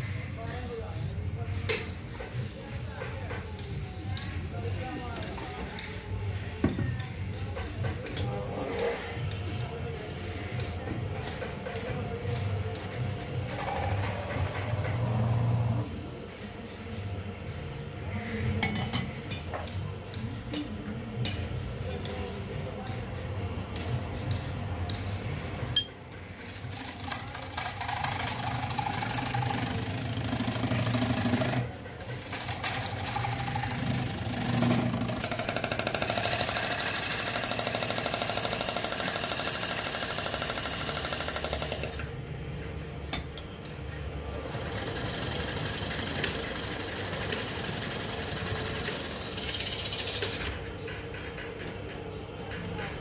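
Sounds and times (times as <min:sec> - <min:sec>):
gouge scraping spinning wood: 0:26.6 - 0:41.9.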